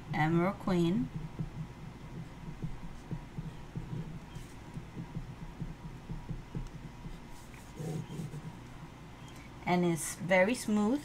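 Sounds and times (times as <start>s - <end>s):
pen scratching on paper: 1.1s - 8.7s.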